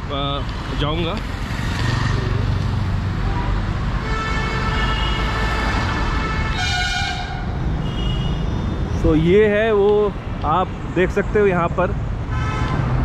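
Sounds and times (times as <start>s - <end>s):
vehicle horns honking: 3.4s - 8.8s, 12.3s - 12.9s.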